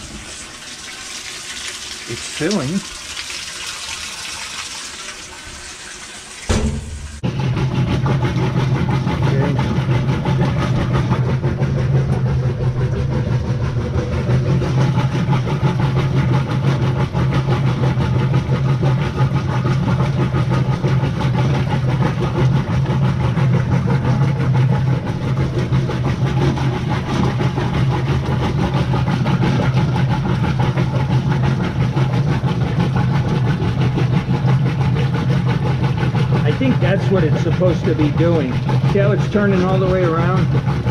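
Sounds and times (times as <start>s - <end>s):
washing machine humming and rattling: 0.0s - 40.9s
washing machine thump: 6.5s - 7.4s.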